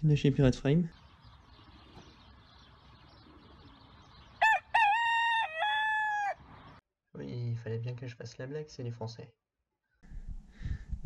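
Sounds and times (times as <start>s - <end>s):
rooster crowing: 4.4s - 6.6s.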